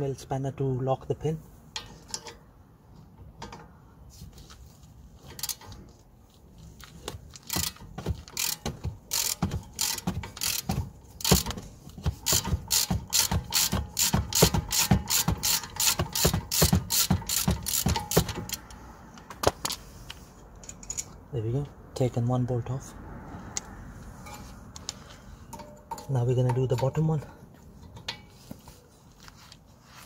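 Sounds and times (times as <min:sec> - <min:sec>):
socket ratchet clicking: 0:07.3 - 0:19.8.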